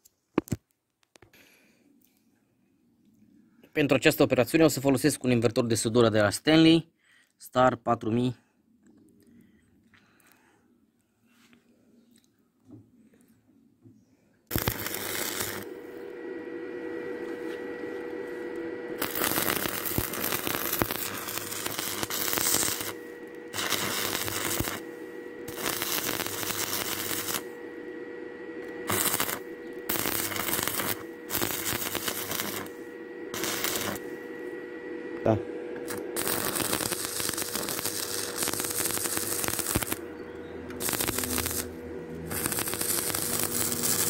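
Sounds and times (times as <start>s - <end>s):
faint steady hum: 8.2s - 44.0s
welding arc crackling: 14.5s - 34.6s, 35.2s - 44.0s.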